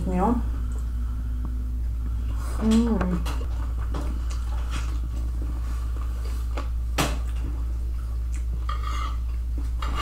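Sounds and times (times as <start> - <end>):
low hum: 0.0 - 10.0
chewing and wet mouth clicks: 8.2 - 8.5.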